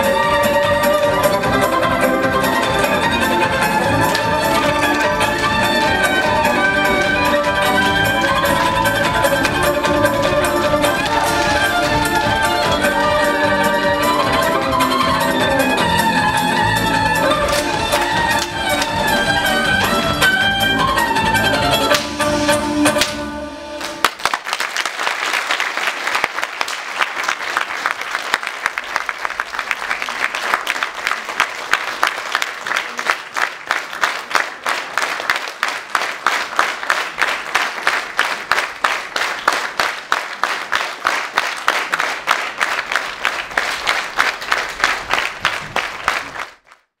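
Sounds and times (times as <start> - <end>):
audience clapping: 0.0 - 22.3, 23.8 - 47.0
fiddle and guitar dance music: 0.0 - 24.1.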